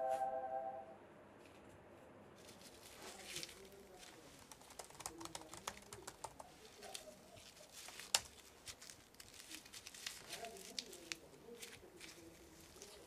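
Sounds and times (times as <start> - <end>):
laptop keyboard typing: 4.4 - 6.7.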